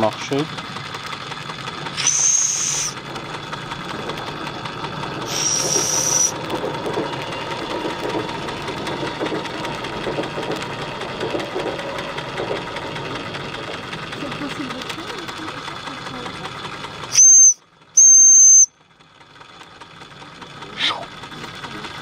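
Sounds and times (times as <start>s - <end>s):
toy steam engine clattering: 5.2s - 17.1s
steam hissing bursts: 5.3s - 6.3s.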